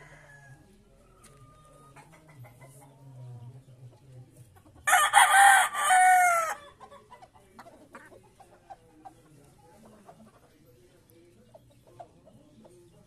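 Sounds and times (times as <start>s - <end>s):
rooster crowing: 4.9s - 6.6s.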